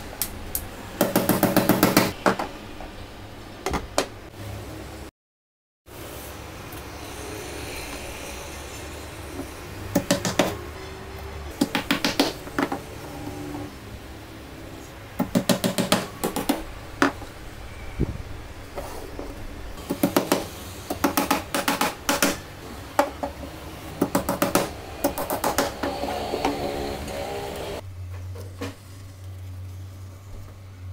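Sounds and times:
hammer driving nails into wood: 0:11.6 - 0:12.8, 0:19.8 - 0:22.4, 0:24.0 - 0:26.6.

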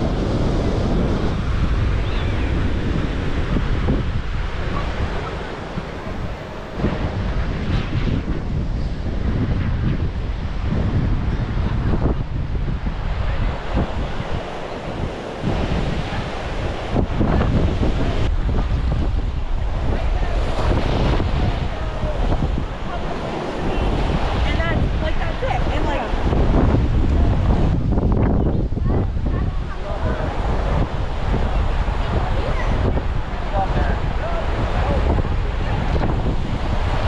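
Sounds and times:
ocean surf breaking: 0:00.0 - 0:37.0
wind buffeting microphone: 0:00.0 - 0:37.0.

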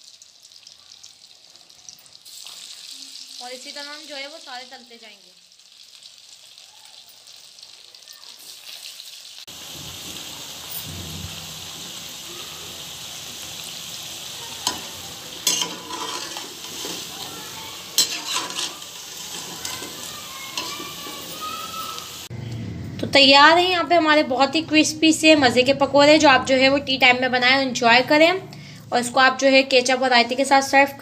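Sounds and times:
food deep-frying in hot oil: 0:00.0 - 0:22.3.

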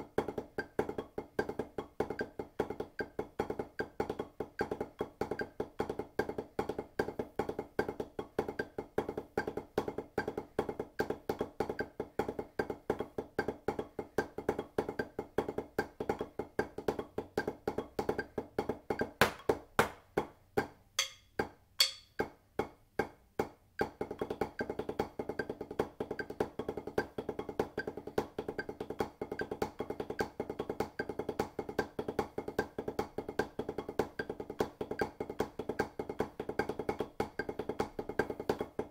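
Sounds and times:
drumsticks on practice pad: 0:21.0 - 0:22.4.

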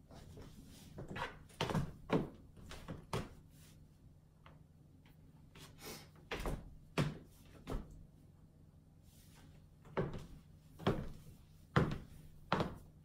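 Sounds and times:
footsteps on hardwood floor: 0:00.1 - 0:03.4, 0:09.9 - 0:12.9.

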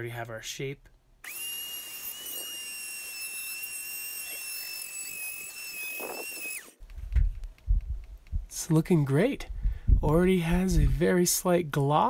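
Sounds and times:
rotary tool high-pitched whine: 0:01.2 - 0:06.8.

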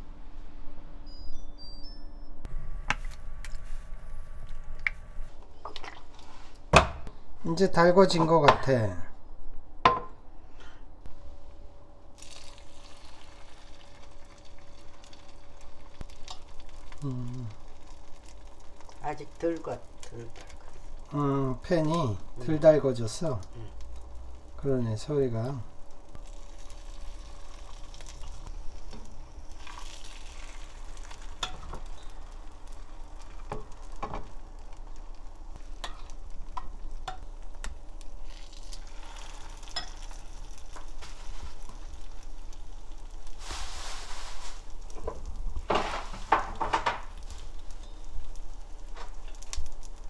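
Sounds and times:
fish sizzling in oil: 0:12.2 - 0:50.0.

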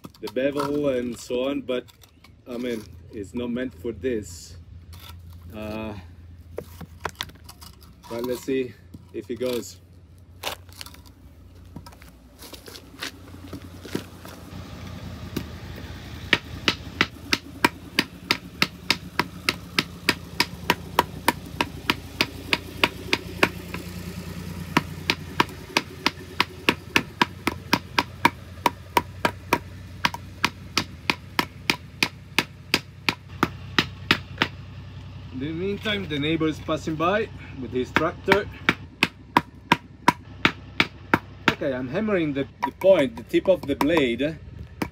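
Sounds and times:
tractor engine hum: 0:00.0 - 0:44.9.

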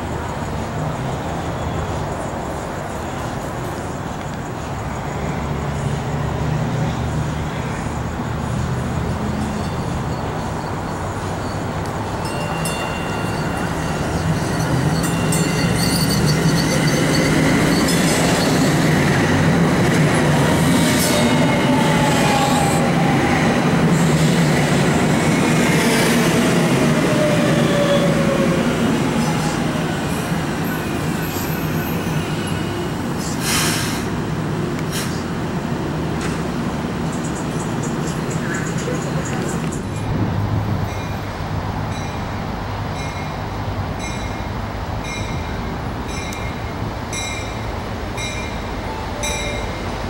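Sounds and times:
light rail train whining to a stop: 0:00.0 - 0:50.0.

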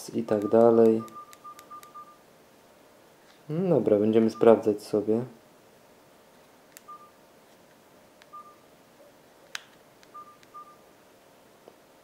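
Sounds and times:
high key-tone beeps: 0:00.2 - 0:02.2, 0:06.9 - 0:07.2, 0:08.3 - 0:08.7, 0:10.1 - 0:10.8.

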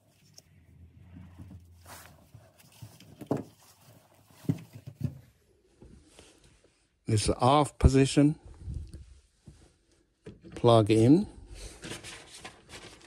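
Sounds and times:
handling rustling: 0:00.0 - 0:06.5.

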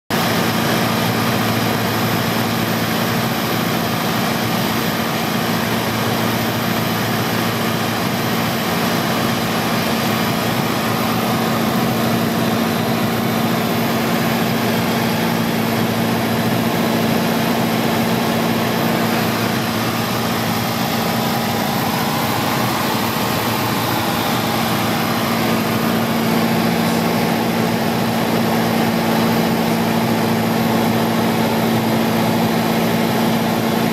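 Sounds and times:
aircraft engine and propeller droning: 0:00.1 - 0:33.9
rushing cabin noise: 0:09.1 - 0:31.4.

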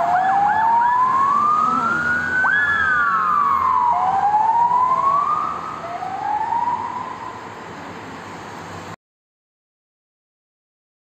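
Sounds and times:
sirens wailing: 0:00.0 - 0:07.8.

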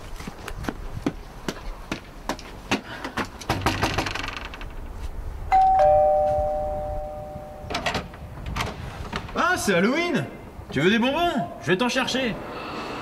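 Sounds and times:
two-tone doorbell chime: 0:05.5 - 0:07.8.

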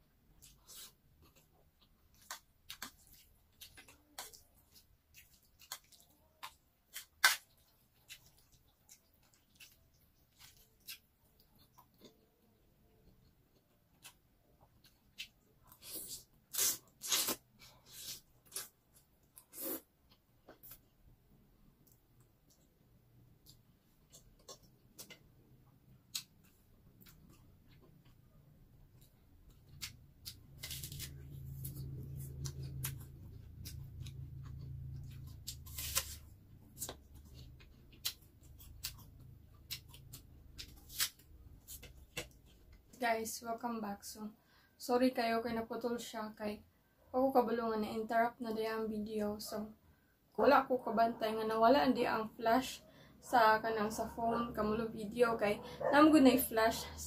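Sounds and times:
crunching apple bites: 0:15.2 - 0:19.8, 0:29.5 - 0:42.6.

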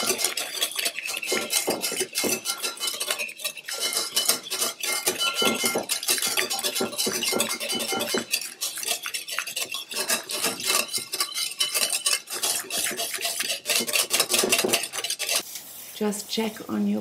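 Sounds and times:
whisk scraping a ceramic bowl: 0:00.0 - 0:15.6.

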